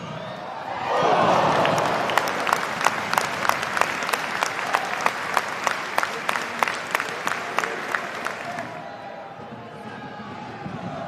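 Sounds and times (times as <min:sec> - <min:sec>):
crowd clapping in unison: 0:01.1 - 0:08.8.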